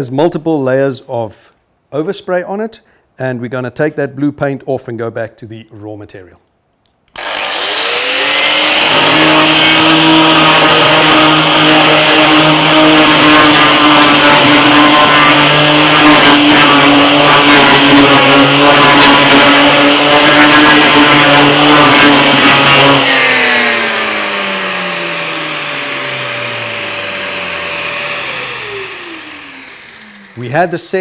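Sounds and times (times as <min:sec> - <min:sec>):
router whining while stripping paint: 0:07.1 - 0:31.0.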